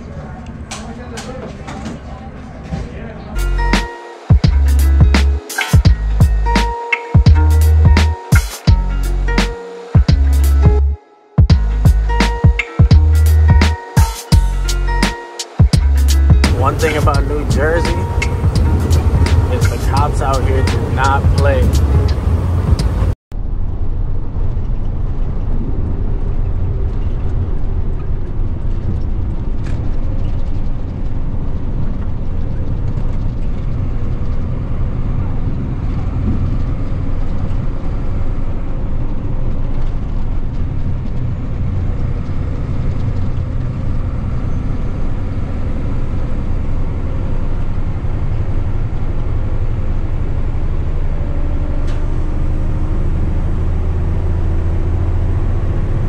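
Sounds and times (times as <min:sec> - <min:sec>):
diesel engine rumble: 0:00.0 - 0:56.0
tyre and road noise: 0:00.0 - 0:56.0.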